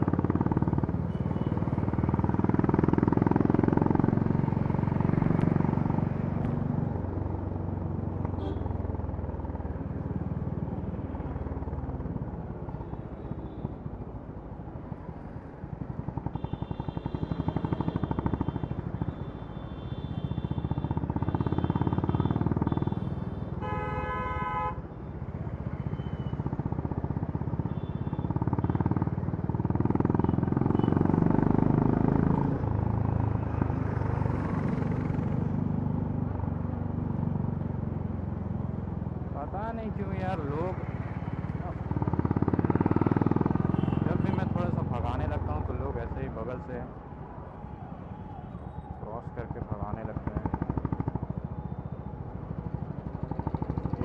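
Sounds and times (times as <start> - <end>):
vehicle horn honking: 8.4 - 8.7, 21.4 - 24.8, 43.7 - 44.5
motorcycle engine exhaust: 50.2 - 54.0.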